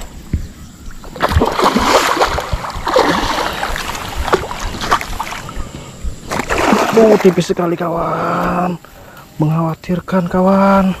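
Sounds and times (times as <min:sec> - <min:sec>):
fish splashing in water: 0:00.9 - 0:07.5.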